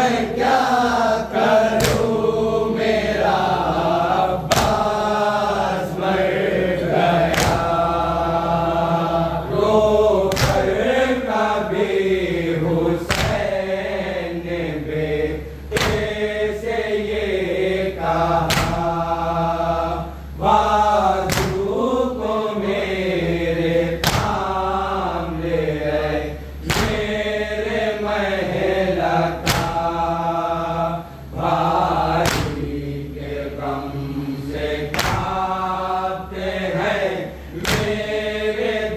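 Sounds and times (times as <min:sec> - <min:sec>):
men chanting in unison: 0:00.0 - 0:38.9
sharp rhythmic strikes: 0:00.4 - 0:02.6, 0:03.3 - 0:06.0, 0:07.2 - 0:08.4, 0:10.3 - 0:11.8, 0:13.0 - 0:13.9, 0:15.7 - 0:17.4, 0:18.3 - 0:19.8, 0:20.7 - 0:21.9, 0:24.0 - 0:24.9, 0:26.6 - 0:28.2, 0:29.3 - 0:30.2, 0:31.6 - 0:32.9, 0:34.8 - 0:36.0, 0:37.5 - 0:38.9.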